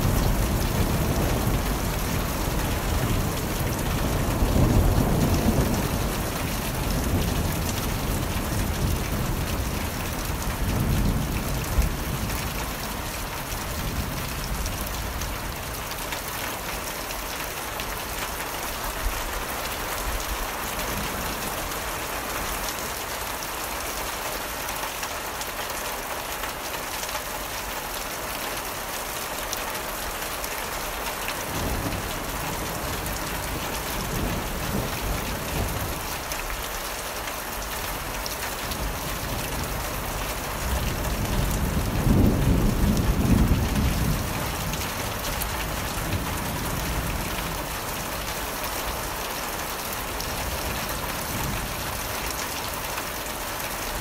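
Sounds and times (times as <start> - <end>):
thunder rumbling: 0.0 - 12.4, 40.5 - 47.6
heavy rain falling: 0.0 - 54.0.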